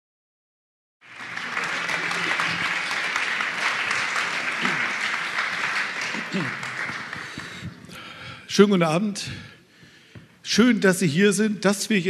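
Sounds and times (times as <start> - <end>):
audience applauding: 1.0 - 8.0.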